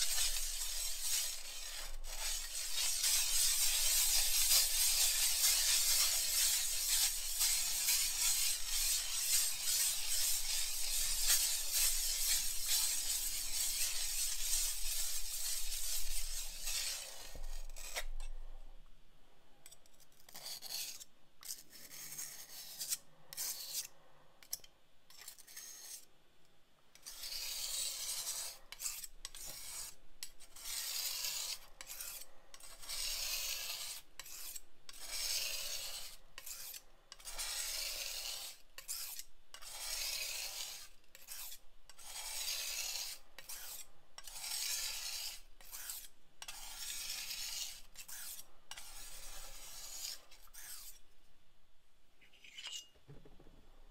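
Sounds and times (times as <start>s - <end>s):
glass muller grinding pigment: 0.0s - 18.2s, 27.0s - 29.9s, 30.5s - 51.0s.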